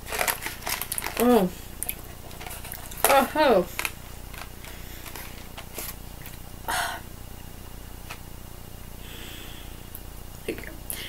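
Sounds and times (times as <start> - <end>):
person chewing candy: 0.0 - 5.5
low background hum: 0.0 - 11.0
short breath: 9.0 - 9.9.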